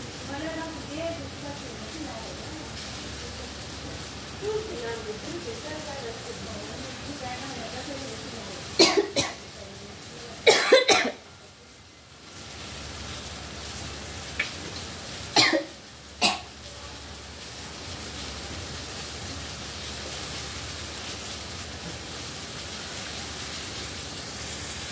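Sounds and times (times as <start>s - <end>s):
oil and spices sizzling in wok: 0.0s - 24.9s
person coughing: 8.8s - 9.4s, 10.5s - 11.2s, 15.4s - 16.5s.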